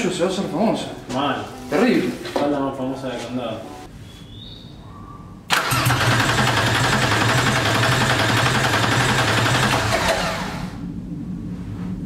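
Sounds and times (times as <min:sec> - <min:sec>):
starter motor cranking engine: 0:05.5 - 0:10.8.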